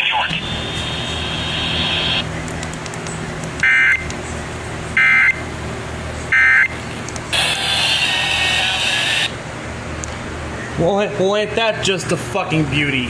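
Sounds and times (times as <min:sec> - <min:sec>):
electronic data bursts: 0:00.0 - 0:02.2, 0:07.3 - 0:09.4
harsh data tone: 0:00.0 - 0:02.3, 0:03.6 - 0:04.1, 0:05.0 - 0:05.4, 0:06.3 - 0:09.4.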